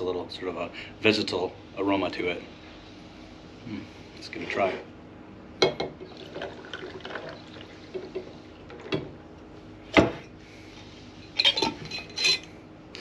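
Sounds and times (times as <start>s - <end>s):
liquid pouring over ice: 6.1s - 8.1s.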